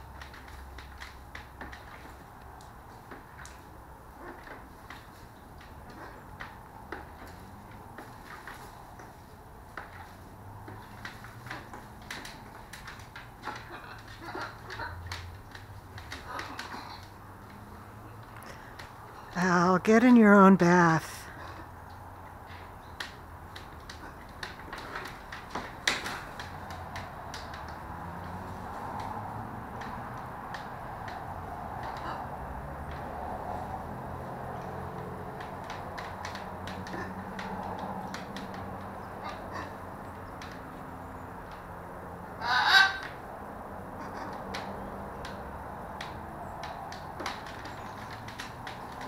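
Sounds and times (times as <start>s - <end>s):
macaw call: 42.4s - 43.2s.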